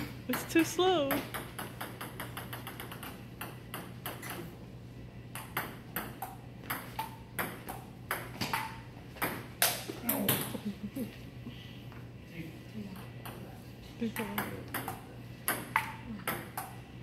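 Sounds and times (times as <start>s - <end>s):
ping-pong ball hitting paddles and table: 0.3s - 4.5s, 5.3s - 10.5s, 13.0s - 13.5s, 14.1s - 16.8s.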